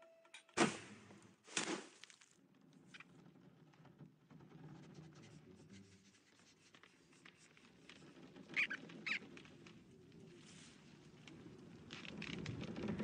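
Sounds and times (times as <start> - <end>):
small clicks and rustling: 6.1 - 13.0
cartoon rodent squeaks: 8.5 - 9.2.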